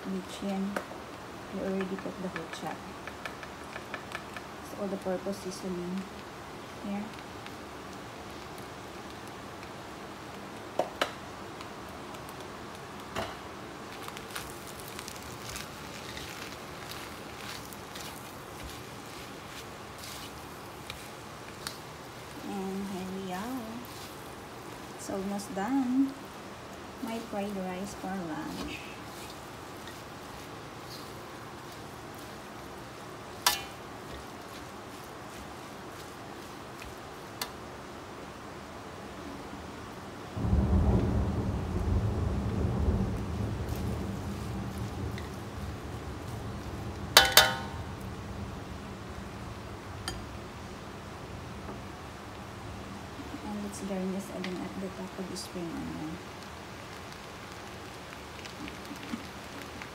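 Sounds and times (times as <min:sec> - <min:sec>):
rice sizzling in a wok: 0:00.0 - 0:59.9
spatula knocking against pan: 0:47.2 - 0:47.7.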